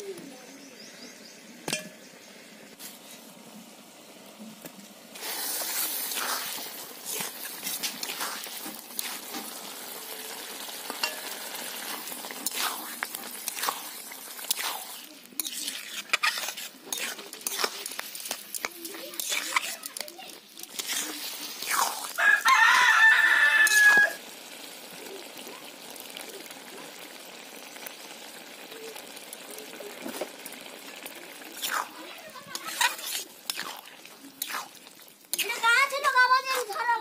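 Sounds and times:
curry sizzling in pan: 0.0 - 37.0
metal spatula scraping pan: 10.8 - 22.2, 31.6 - 37.0.

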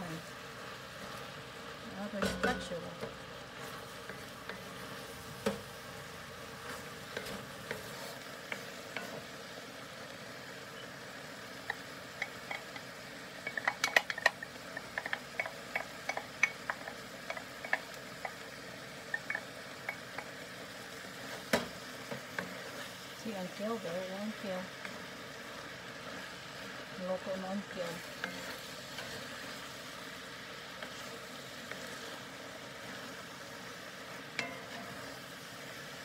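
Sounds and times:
food sizzling in a skillet: 0.0 - 36.0
wooden spatula clicking on pan: 11.6 - 18.5, 19.1 - 20.4, 28.1 - 29.6.

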